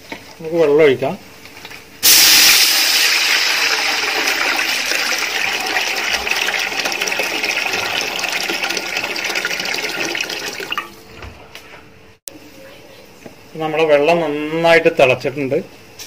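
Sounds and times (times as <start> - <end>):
water pouring into metal pot: 2.0 - 10.9.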